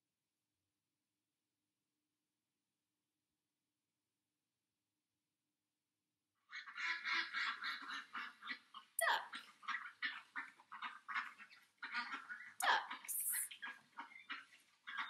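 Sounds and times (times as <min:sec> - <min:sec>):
ducks quacking: 0:06.5 - 0:15.0.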